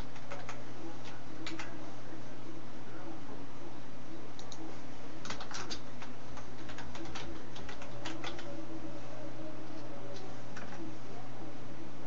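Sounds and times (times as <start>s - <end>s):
keyboard and mouse clicking: 0.0s - 0.6s, 1.4s - 1.7s, 4.4s - 4.6s, 5.2s - 8.5s
low steady hum: 0.0s - 12.0s.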